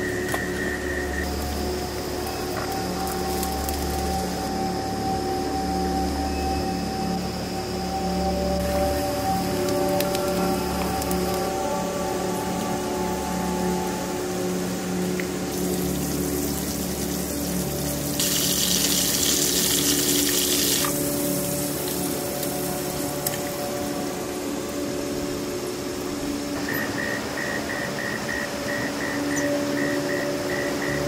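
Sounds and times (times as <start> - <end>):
soft background music: 0.0 - 31.0
hiss: 15.5 - 23.8
high pulsing chirp: 26.6 - 31.0.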